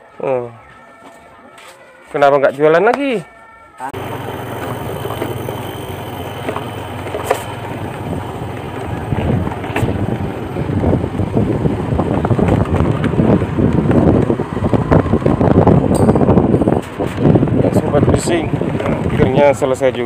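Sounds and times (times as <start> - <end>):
motorbike engine running: 4.0 - 16.5
wind buffeting microphone: 4.0 - 20.0.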